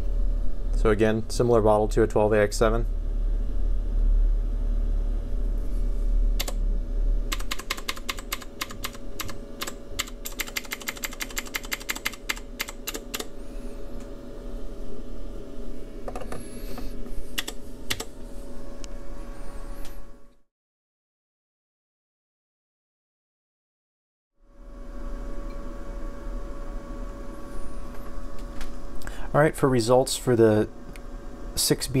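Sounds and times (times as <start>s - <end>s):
steady hum: 0.0s - 20.4s, 24.4s - 32.0s
push-button keys clicking: 7.3s - 13.3s.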